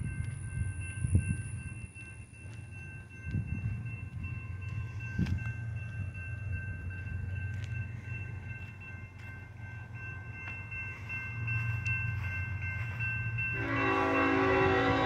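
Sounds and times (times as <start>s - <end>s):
crossing warning bell: 0.0s - 15.0s
locomotive rumbling: 0.0s - 15.0s
locomotive air horn: 13.6s - 15.0s.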